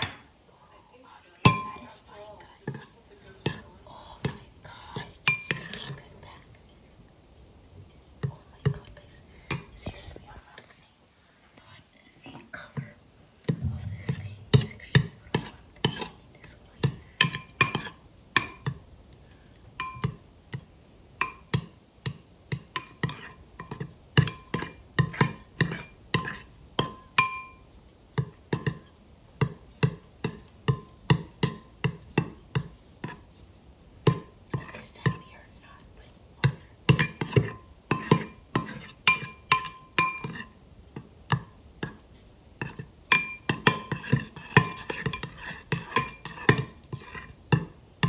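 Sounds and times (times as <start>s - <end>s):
spoon clinking in glass bowl: 15.0s - 18.8s, 19.8s - 20.2s, 21.2s - 33.3s, 36.4s - 42.0s, 42.6s - 47.8s.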